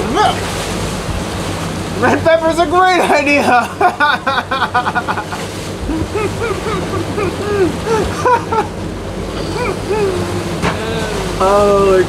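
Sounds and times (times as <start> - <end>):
sea noise: 0.0 - 12.0
wind: 0.0 - 12.0
people laughing hard: 3.0 - 8.8.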